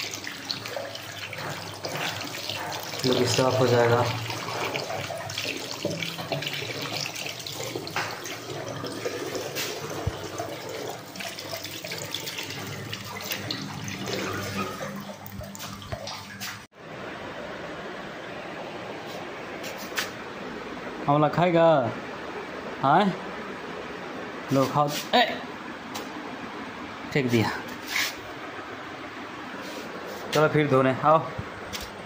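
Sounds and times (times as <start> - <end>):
tap water running into sink: 0.0 - 16.6.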